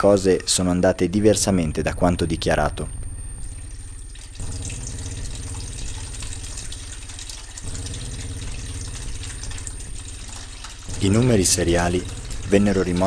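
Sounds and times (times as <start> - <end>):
low steady drone: 1.1 - 13.0
liquid trickling from tap: 3.0 - 13.0
liquid pouring into plastic tub: 3.6 - 13.0.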